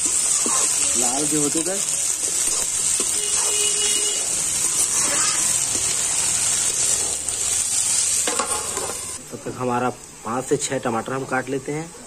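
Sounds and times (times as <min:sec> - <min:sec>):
metal spatula turning food: 0:00.0 - 0:09.2
vegetables sizzling in hot oil: 0:00.0 - 0:12.0.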